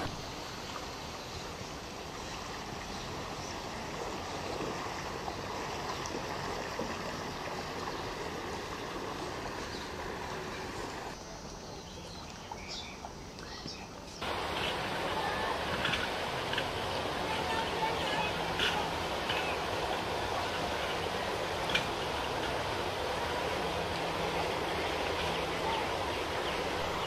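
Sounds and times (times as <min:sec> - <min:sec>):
steady rushing outdoor noise: 0:00.0 - 0:27.0.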